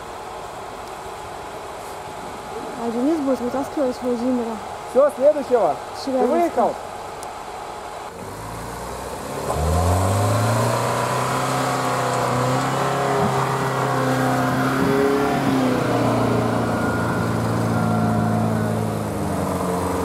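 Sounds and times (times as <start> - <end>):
van engine revving: 8.1 - 20.0.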